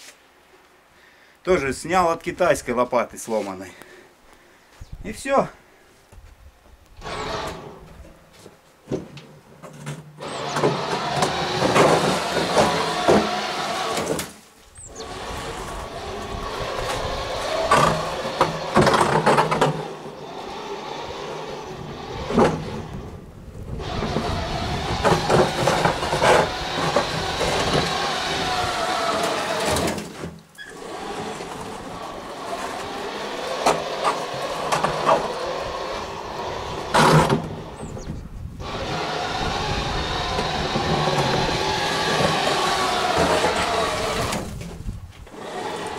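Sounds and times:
electric drive motor running: 7.0 - 7.9, 10.2 - 14.2, 14.8 - 30.0, 30.6 - 45.9
blade scraping through snow: 10.2 - 23.1, 23.7 - 38.0, 38.6 - 45.9.

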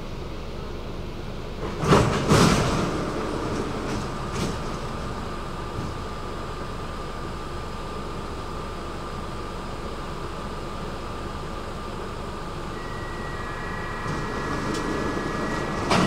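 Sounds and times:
metro train running: 0.0 - 16.0
thin whine: 12.6 - 16.0.

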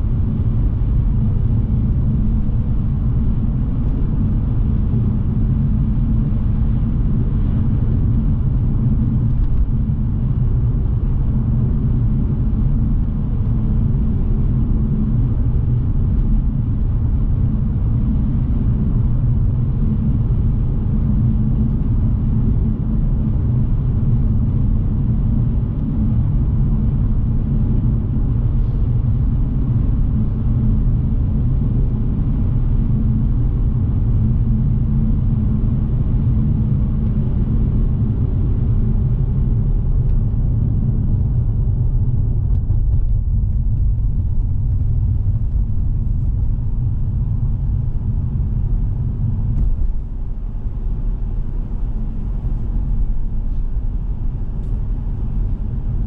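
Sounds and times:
engine and tyre rumble: 0.0 - 56.0
faint constant hum: 0.0 - 56.0.

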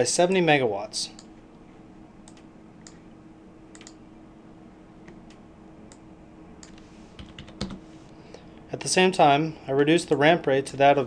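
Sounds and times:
low electrical hum: 0.0 - 11.0
computer mouse and keyboard clicks: 3.8 - 4.0.

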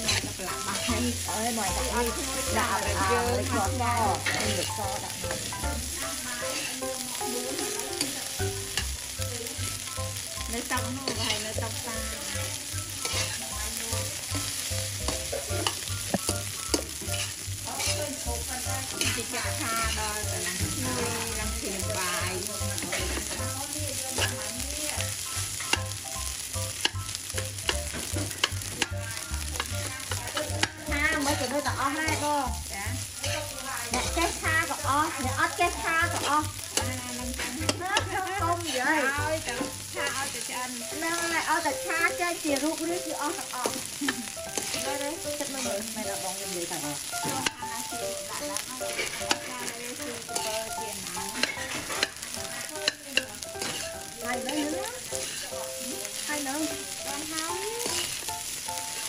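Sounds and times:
fried rice sizzling in a wok: 0.0 - 59.0
spatulas scraping a pan: 0.0 - 59.0.

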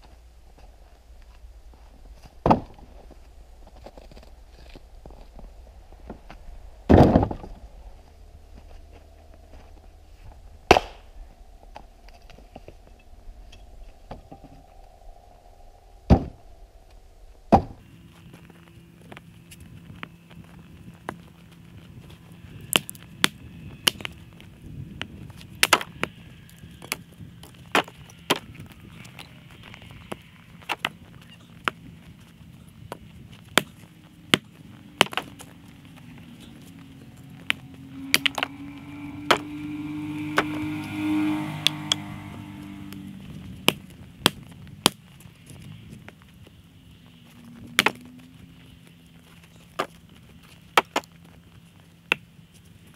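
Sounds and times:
axe splitting firewood: 2.4 - 2.8, 6.9 - 7.5, 10.7 - 11.0, 22.7 - 24.2, 25.6 - 26.0, 27.7 - 28.5, 30.6 - 31.0, 33.5 - 35.5, 38.1 - 38.5, 39.2 - 39.6, 43.6 - 45.0, 47.7 - 48.0, 50.7 - 51.1.

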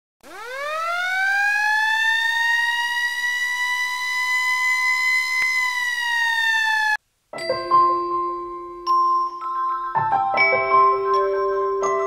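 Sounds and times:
rising siren-like tone: 0.2 - 7.0.

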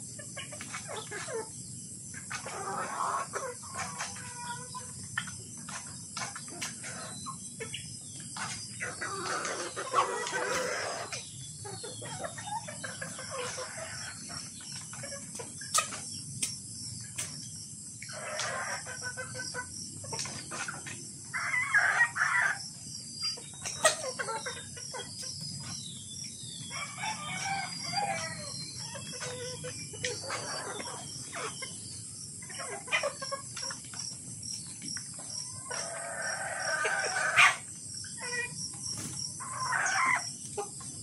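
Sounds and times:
chickens clucking: 0.0 - 41.0
roosters crowing: 8.8 - 11.2, 21.3 - 22.7, 26.6 - 31.6, 35.5 - 37.7, 39.4 - 40.3.

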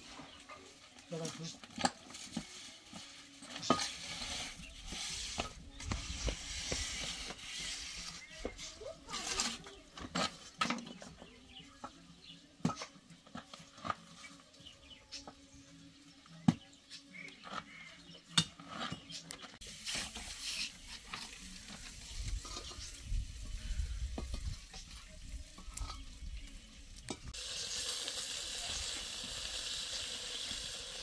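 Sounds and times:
food sizzling in a pan: 27.3 - 31.0.

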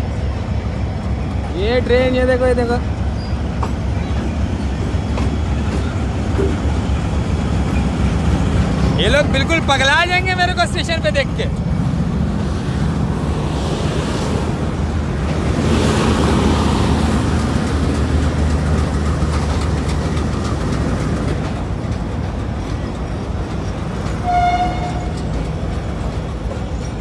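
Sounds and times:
diesel locomotive engine rumbling: 0.0 - 27.0
train horn toot: 24.2 - 25.2.

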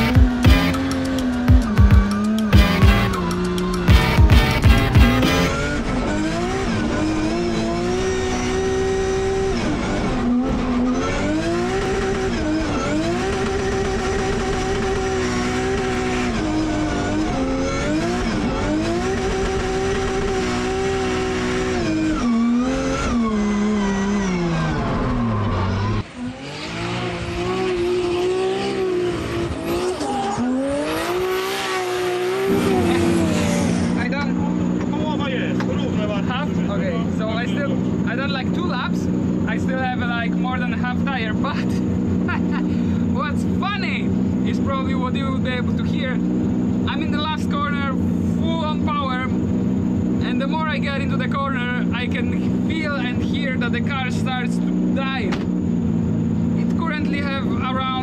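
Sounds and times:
car engine at high revs: 0.0 - 58.0
tyre squeal: 21.9 - 26.1, 29.5 - 34.0.

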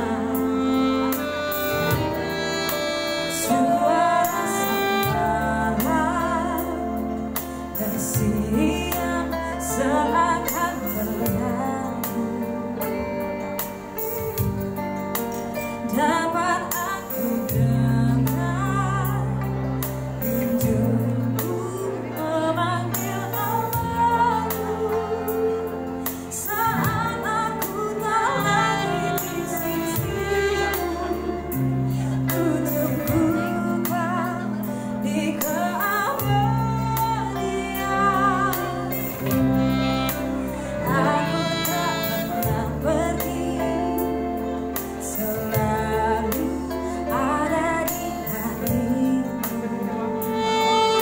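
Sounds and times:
bass line: 0.0 - 51.0
electric guitar: 0.0 - 51.0
saxophone: 0.0 - 51.0
woman singing: 0.0 - 51.0.

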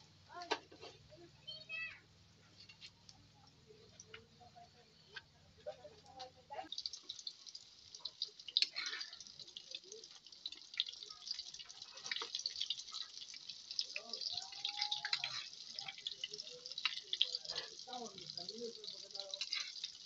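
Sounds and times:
fritters sizzling in hot oil: 2.4 - 20.0
metal spatula stirring: 8.0 - 11.0, 11.6 - 20.0.

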